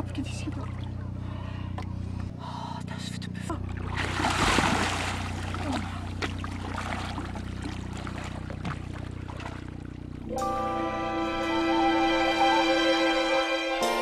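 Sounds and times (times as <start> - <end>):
steady low hum: 0.0 - 14.0
swimmer splashing into water: 3.6 - 10.0
soft swimming splashes: 3.6 - 10.2.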